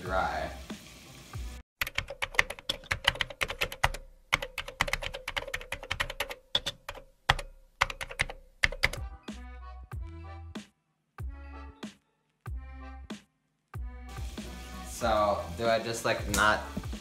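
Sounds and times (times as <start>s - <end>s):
keyboard typing: 1.8s - 9.0s.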